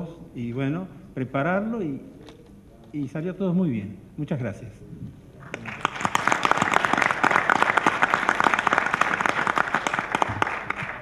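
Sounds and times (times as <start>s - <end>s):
audience applauding: 5.5s - 11.0s.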